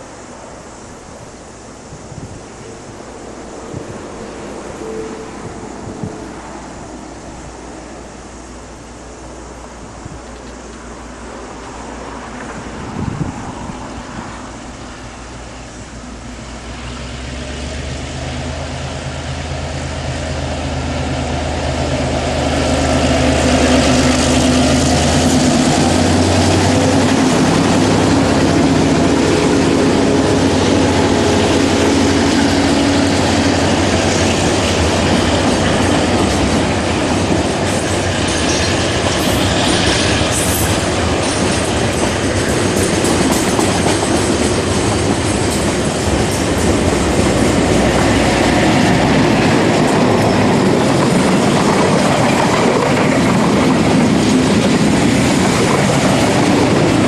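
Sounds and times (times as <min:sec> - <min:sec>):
diesel locomotive engines droning: 0:00.0 - 0:57.0
train wagons clickety-clack: 0:16.4 - 0:57.0
high wheel squeal: 0:22.4 - 0:52.5.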